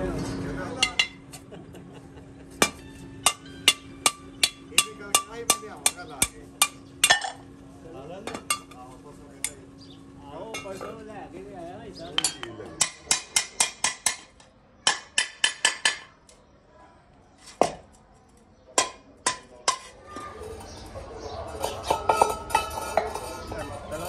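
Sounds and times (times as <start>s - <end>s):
voices: 0.0s - 24.0s
metal rod tapping on brass: 2.6s - 7.4s.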